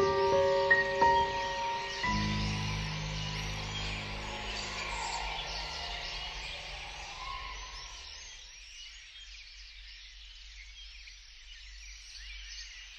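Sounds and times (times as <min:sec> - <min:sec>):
sustained music chord: 0:00.0 - 0:07.2
flock of birds chirping: 0:00.0 - 0:12.9
low steady rumble: 0:02.1 - 0:07.2.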